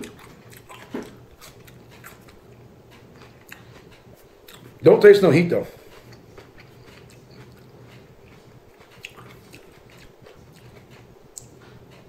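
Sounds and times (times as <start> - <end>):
faint chewing of pepper: 0.0 - 4.8, 5.6 - 12.0.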